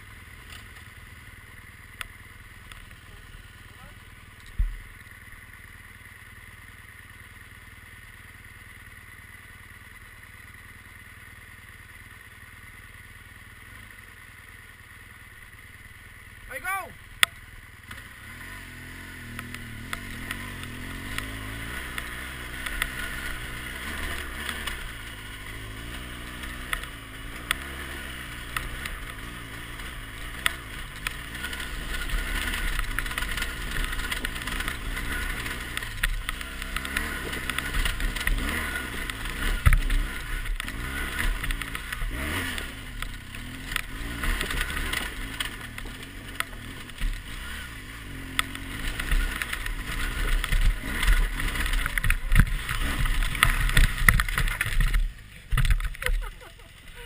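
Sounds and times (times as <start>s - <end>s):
motorcycle engine climbing: 0.0s - 57.0s
clicks and knocks from ground: 48.9s - 56.4s.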